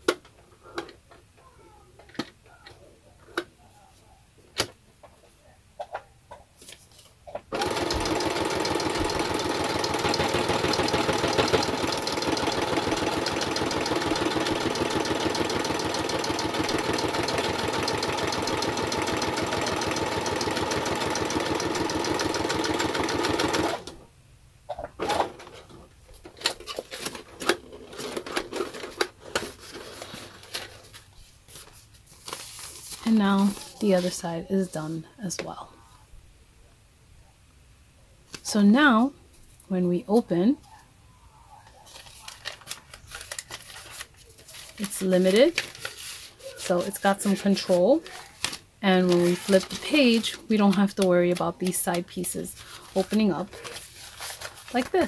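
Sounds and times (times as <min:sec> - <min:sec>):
sewing machine stitching: 0:07.5 - 0:24.0.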